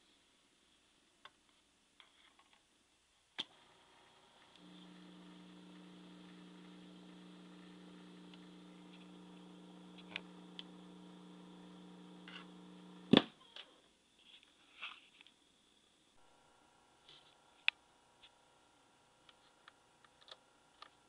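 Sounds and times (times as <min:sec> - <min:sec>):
tape recorder motor hum: 0:03.4 - 0:13.4, 0:16.2 - 0:21.0
small clicks: 0:04.4 - 0:13.7, 0:19.2 - 0:21.0.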